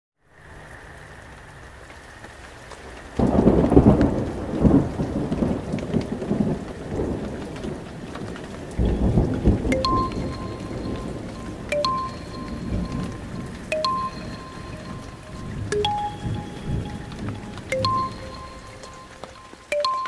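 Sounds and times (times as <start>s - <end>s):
steady rain: 0.2s - 20.0s
rolling thunderclap: 3.2s - 11.7s.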